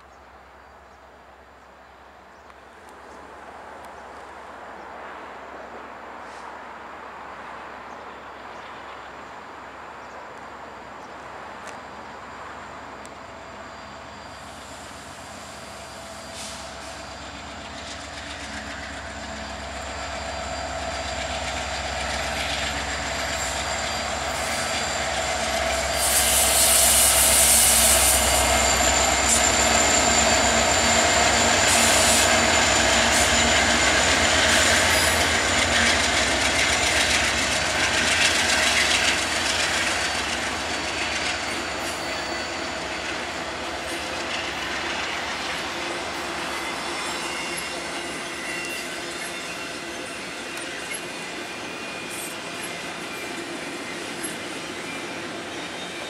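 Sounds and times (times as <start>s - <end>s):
freight train passing: 0.0s - 56.0s.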